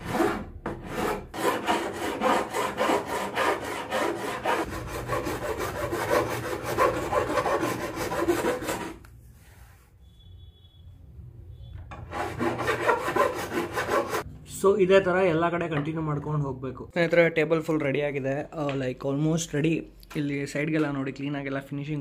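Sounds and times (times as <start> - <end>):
hand file rasping on laminate: 0.0 - 9.0, 12.1 - 14.2.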